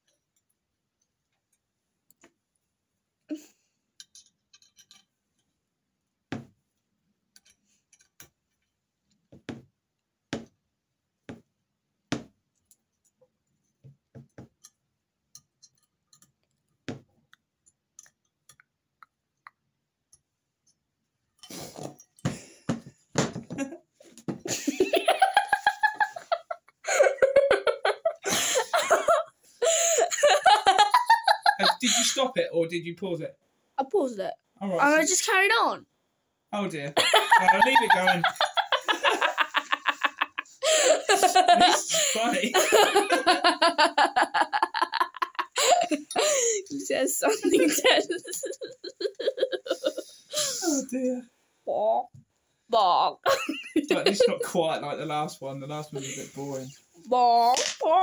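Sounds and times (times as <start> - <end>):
metal parts and screws clinking: 4.0 - 5.1
loud laughter: 24.5 - 32.0, 37.0 - 46.6, 47.3 - 50.1.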